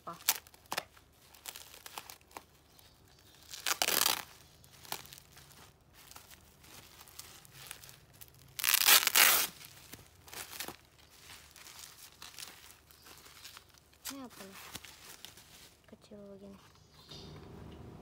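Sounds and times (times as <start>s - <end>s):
bubble wrap crackling bursts: 0.0s - 15.9s
bubble wrap crinkling: 0.0s - 16.6s.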